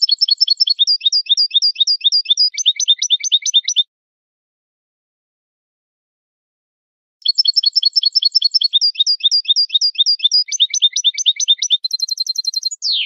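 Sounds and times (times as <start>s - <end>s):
goldfinch singing: 0.0s - 3.8s, 7.2s - 13.0s.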